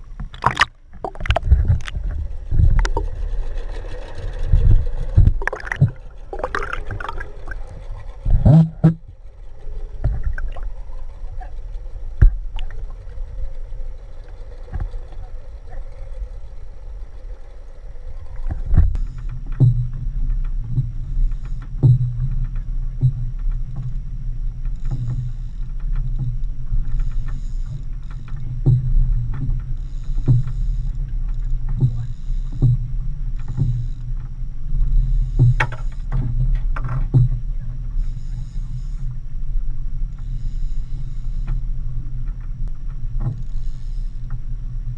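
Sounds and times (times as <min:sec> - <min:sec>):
boat engine rumble: 0:00.0 - 0:44.9
water knocking against hull: 0:00.1 - 0:03.1, 0:04.6 - 0:09.2, 0:10.0 - 0:11.5, 0:12.2 - 0:13.0, 0:18.4 - 0:24.0, 0:24.7 - 0:30.6, 0:31.5 - 0:38.6
fish splashing underwater: 0:00.1 - 0:13.1.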